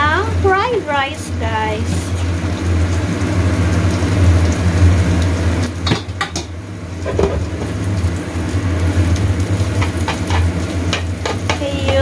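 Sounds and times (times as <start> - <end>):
induction cooker hum: 0.0 - 12.0
onion sizzling in oil: 0.0 - 12.0
clattering knocks against pan: 5.8 - 7.7, 9.8 - 12.0.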